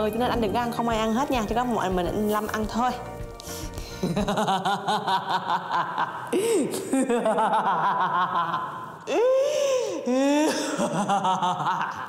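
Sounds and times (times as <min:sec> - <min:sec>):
woman laughing hard: 0:04.0 - 0:09.4, 0:10.2 - 0:12.0.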